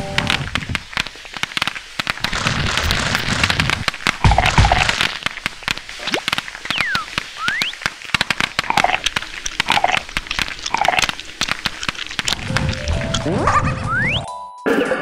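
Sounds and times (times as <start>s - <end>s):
popcorn popping: 0.0s - 13.4s.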